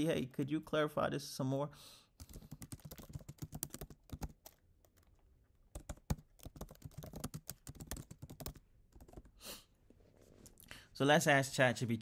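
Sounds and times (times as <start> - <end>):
computer keyboard typing: 2.2 - 9.3.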